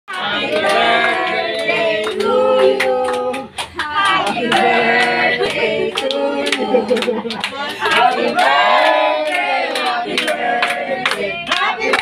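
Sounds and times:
hand clapping: 0.1s - 12.0s
voices singing: 0.1s - 12.0s.

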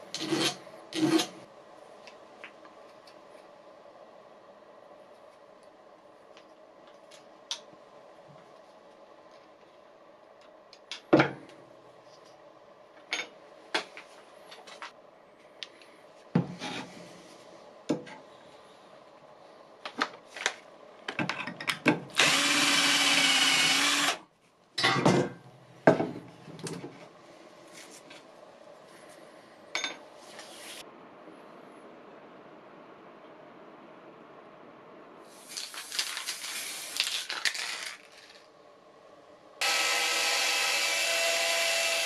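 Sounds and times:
power drill boring metal: 22.2s - 24.2s, 39.6s - 42.0s.

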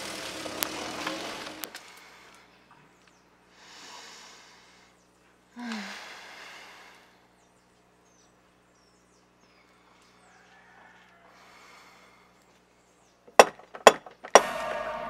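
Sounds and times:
woman sighing: 5.6s - 6.3s
woman breathing in: 5.6s - 7.3s, 11.2s - 12.5s.

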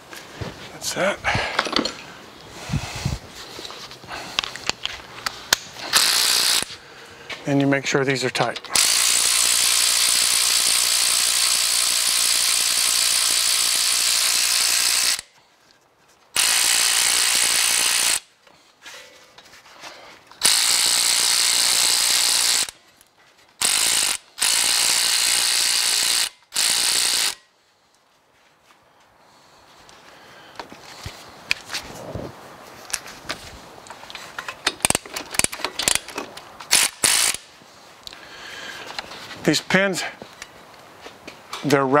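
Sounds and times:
power ratchet running: 5.9s - 6.7s, 8.8s - 15.3s, 16.4s - 18.2s, 20.4s - 22.8s, 23.6s - 27.4s, 36.7s - 37.4s.

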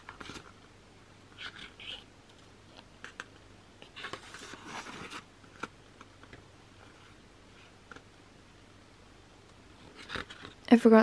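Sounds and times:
photobook pages turning: 0.0s - 0.6s, 1.3s - 8.0s, 9.8s - 10.6s.

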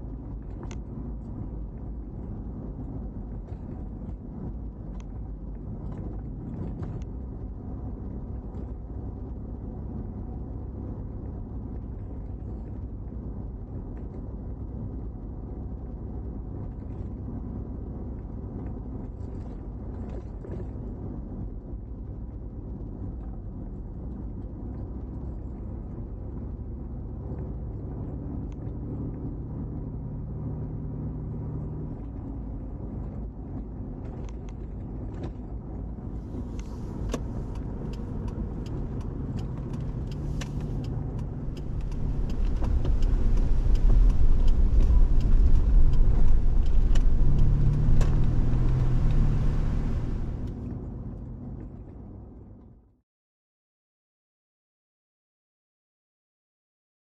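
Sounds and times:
car engine hum: 0.0s - 52.8s.

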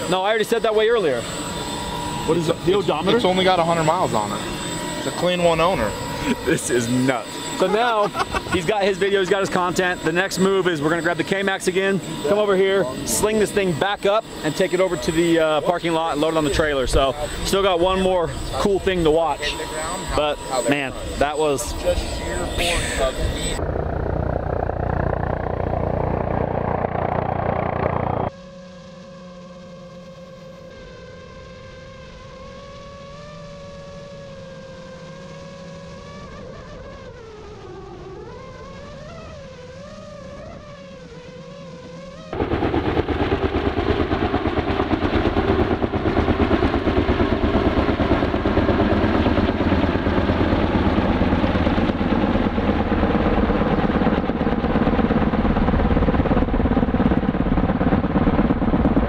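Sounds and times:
helicopter rotors beating: 0.0s - 59.0s.

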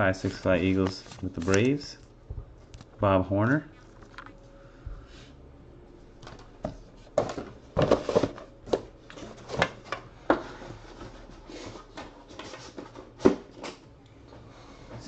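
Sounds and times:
cards and plastic sleeves tapping: 0.2s - 1.8s.

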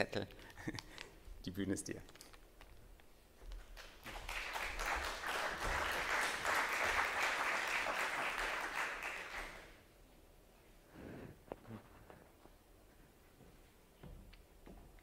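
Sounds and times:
audience applauding: 3.6s - 9.8s.

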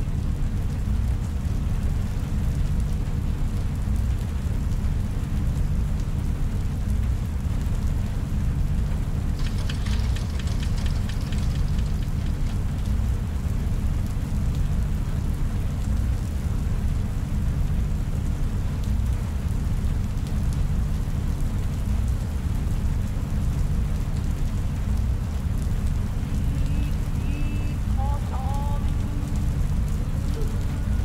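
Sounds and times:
rain-like hiss: 0.0s - 31.0s
deep rumbling drone: 8.6s - 15.0s, 25.0s - 31.0s
faint clicks: 9.3s - 13.6s.

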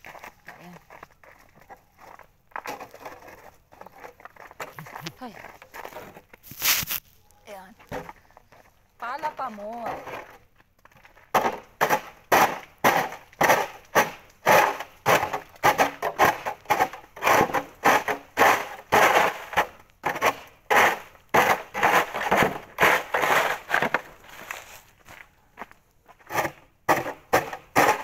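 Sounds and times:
snow shovel scraping on paving: 2.6s - 7.2s, 11.4s - 25.0s, 26.2s - 28.0s.

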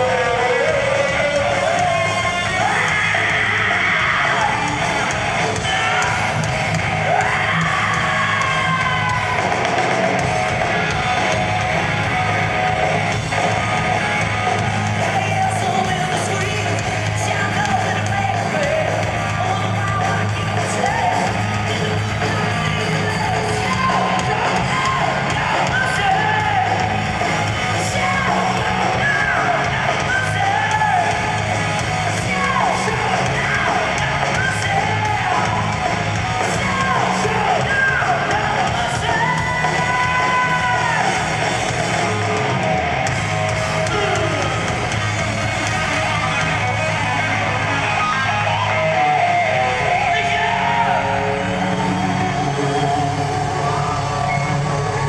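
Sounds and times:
man singing lead vocal: 0.0s - 9.5s, 15.0s - 27.0s, 27.7s - 41.4s
live hard rock band: 0.0s - 55.0s.

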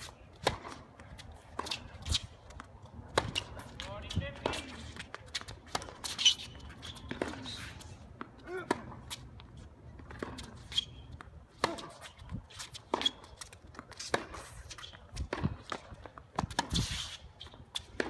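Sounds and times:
footsteps on court: 0.0s - 18.0s
shoe squeaks: 4.6s - 8.2s, 9.0s - 15.3s, 16.6s - 18.0s.

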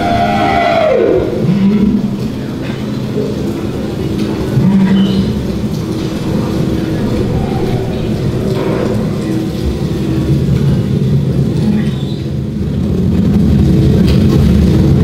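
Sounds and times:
low underwater rumble over loudspeakers: 0.0s - 15.0s
steady humming tones: 0.0s - 15.0s.

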